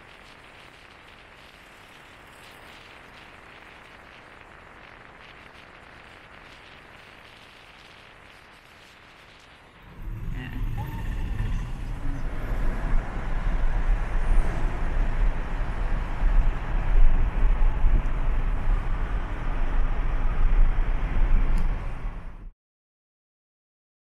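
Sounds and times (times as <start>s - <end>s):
car road noise rumble: 9.7s - 22.5s.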